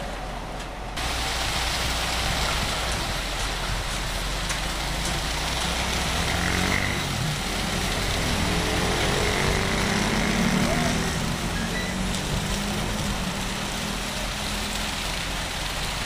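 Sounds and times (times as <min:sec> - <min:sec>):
wet concrete sliding down chute: 0:00.0 - 0:16.0.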